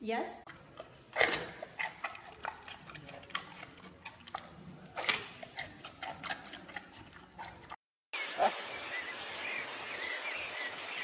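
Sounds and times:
panda chewing bamboo: 0:00.5 - 0:07.8.

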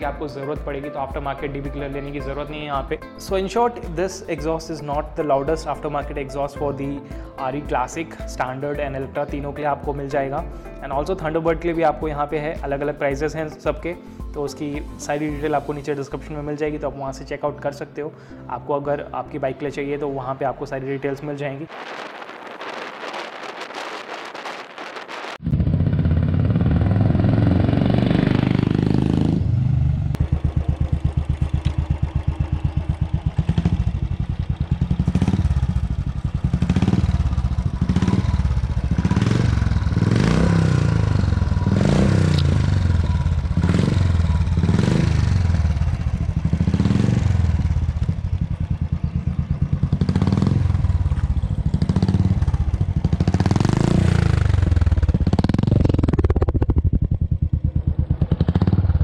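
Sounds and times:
motorcycle engine idling and revving: 0:25.4 - 0:59.0.

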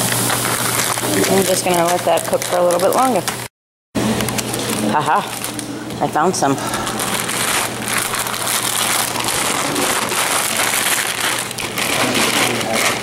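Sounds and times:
food sizzling in frying pan: 0:00.0 - 0:02.5.

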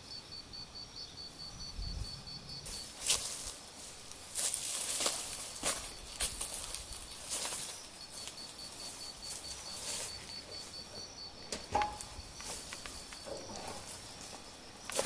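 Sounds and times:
soft footsteps: 0:02.6 - 0:15.0.

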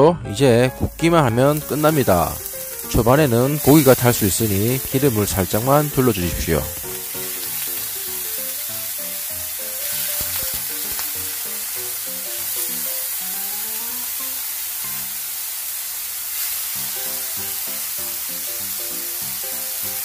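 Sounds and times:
light music melody: 0:00.0 - 0:15.2, 0:16.7 - 0:20.0
food sizzling in frying pan: 0:00.5 - 0:20.0.

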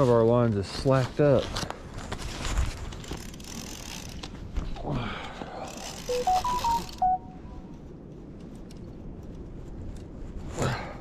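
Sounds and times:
fishing rod and reel rustling: 0:01.9 - 0:04.8, 0:05.6 - 0:07.1
electronic beeping jingle: 0:06.1 - 0:07.6.

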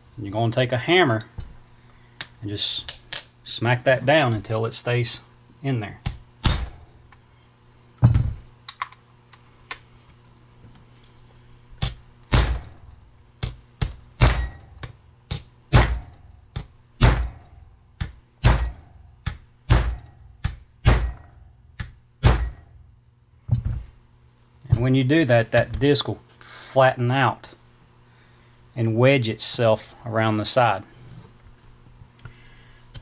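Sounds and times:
hammer blows on metal: 0:17.0 - 0:22.8.

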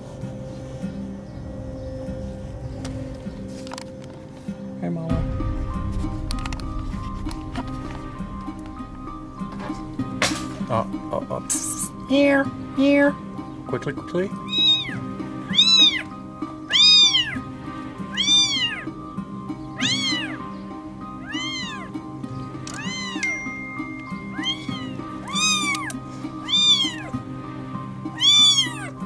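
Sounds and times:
soft background music: 0:00.0 - 0:29.0
kitten meowing: 0:14.4 - 0:16.1, 0:16.7 - 0:17.4, 0:18.1 - 0:18.9, 0:19.8 - 0:20.4, 0:21.2 - 0:21.9, 0:22.8 - 0:23.4, 0:24.3 - 0:27.2, 0:28.2 - 0:29.0.

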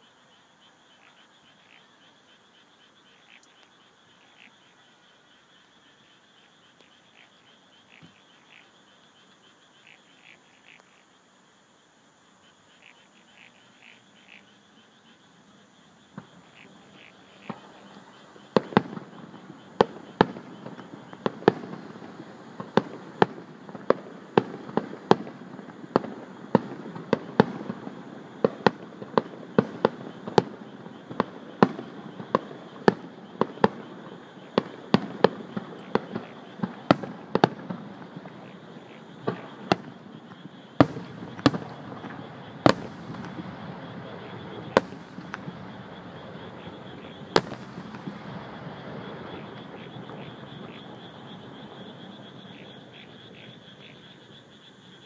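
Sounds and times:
frogs chirping: 0:00.0 - 0:55.0
night insects chirping: 0:00.0 - 0:55.0
firework booms and bangs: 0:18.5 - 0:51.6.

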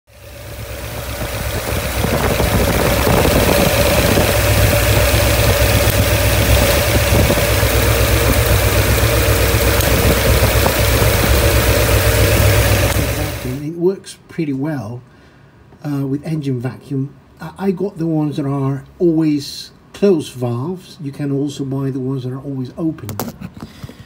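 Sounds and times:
car engine idling: 0:00.1 - 0:13.6.

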